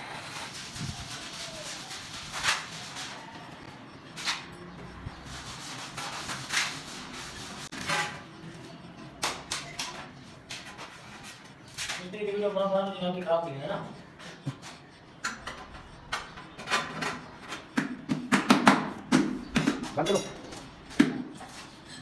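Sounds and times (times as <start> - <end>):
trowel scraping adhesive: 0.0 - 3.5, 5.2 - 8.3.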